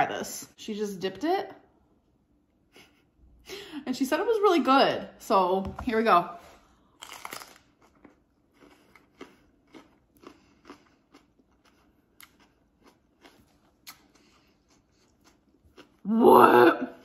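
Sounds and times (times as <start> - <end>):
person chewing pepper crunches: 6.8 - 16.1.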